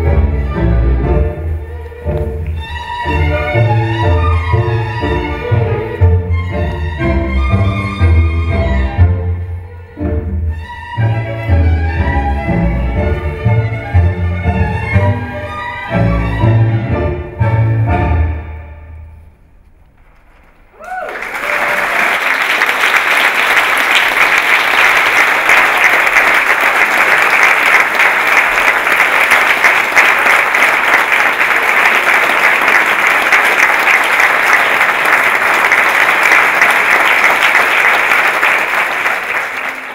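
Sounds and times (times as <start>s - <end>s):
audience applauding: 20.4s - 39.9s.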